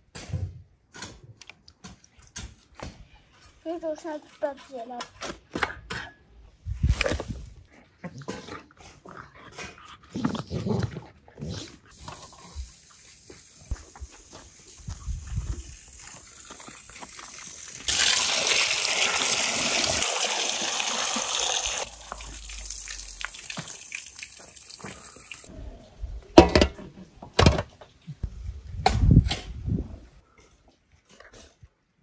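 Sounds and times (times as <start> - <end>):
water gushing from a spout: 14.7 - 25.5.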